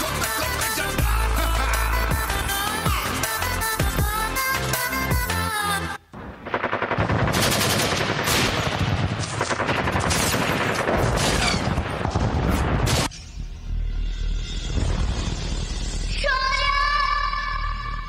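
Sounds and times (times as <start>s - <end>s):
recorded machine-gun fire: 6.4s - 12.2s.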